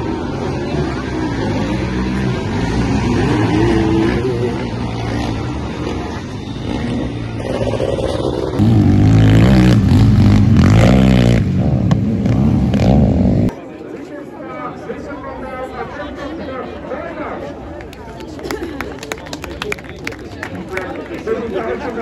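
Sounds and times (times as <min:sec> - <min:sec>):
motocross engines revving: 0:00.0 - 0:13.6.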